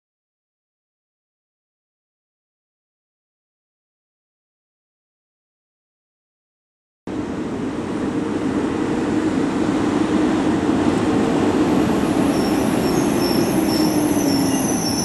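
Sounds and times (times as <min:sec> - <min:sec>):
thin high squeal: 0:12.2 - 0:15.0.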